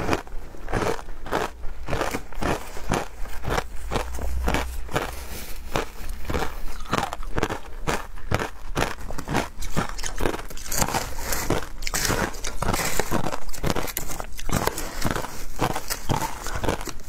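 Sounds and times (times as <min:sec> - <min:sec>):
ice being chewed: 0:00.0 - 0:17.0
metal spoon scraping ice: 0:09.5 - 0:17.0.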